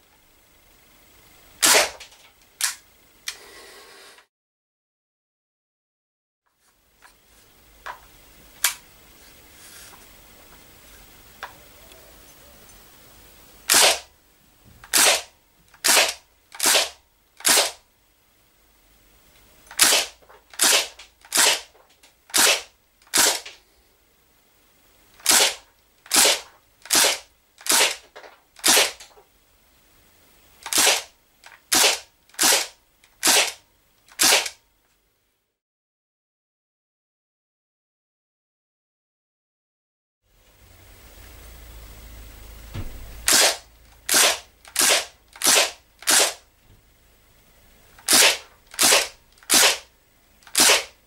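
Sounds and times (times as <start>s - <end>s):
air rifle firing shots: 1.6s - 2.0s, 13.7s - 14.1s, 14.9s - 17.8s, 19.8s - 21.7s, 22.3s - 23.6s, 25.2s - 28.0s, 28.6s - 29.0s, 30.7s - 31.1s, 31.7s - 33.6s, 34.2s - 34.6s, 42.8s - 46.4s, 48.1s - 49.9s, 50.5s - 51.0s.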